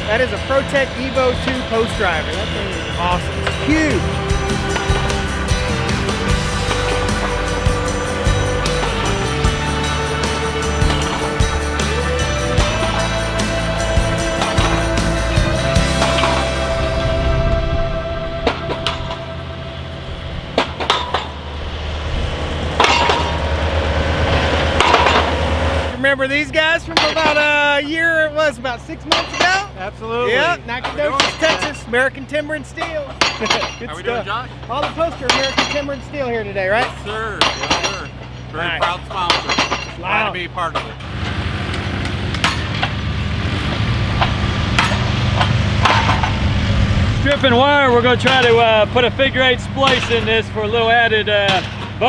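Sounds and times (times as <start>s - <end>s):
engine idling: 0.0s - 52.0s
metallic knocks and clinks: 22.8s - 23.4s, 29.1s - 29.7s, 32.8s - 34.0s, 34.7s - 36.2s, 36.8s - 40.0s
sharp clinks and knocks: 36.8s - 40.0s.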